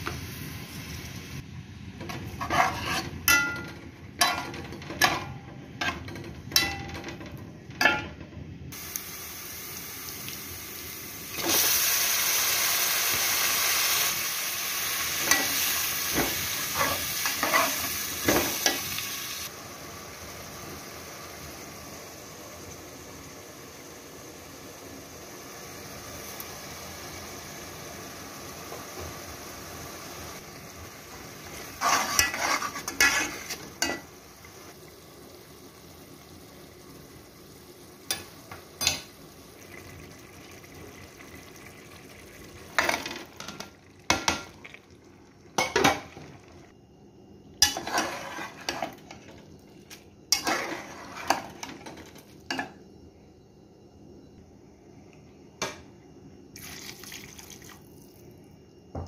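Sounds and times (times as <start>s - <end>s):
food sizzling in a pot: 0.0s - 7.1s, 8.7s - 53.0s
spoon stirring and scraping pot: 2.0s - 7.2s, 16.2s - 18.9s, 31.5s - 34.1s, 47.6s - 49.3s, 50.3s - 52.7s.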